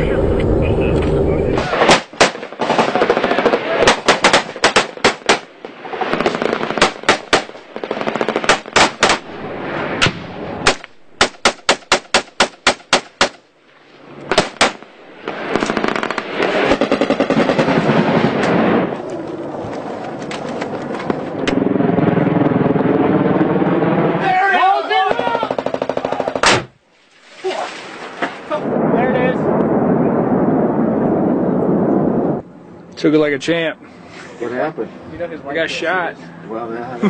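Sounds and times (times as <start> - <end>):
rifle and machine-gun fire: 1.6 - 9.4, 10.0 - 13.4, 14.3 - 18.8, 25.5 - 26.7.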